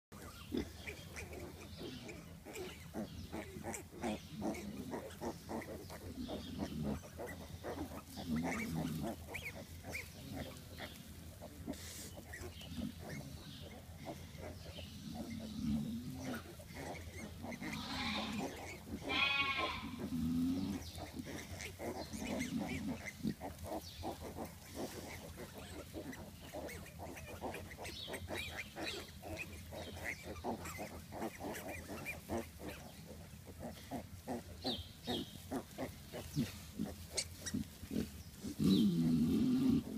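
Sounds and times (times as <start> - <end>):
sow grunting: 0.1 - 39.9
piglets rustling in straw: 0.2 - 39.9
piglet squeal: 15.2 - 20.1.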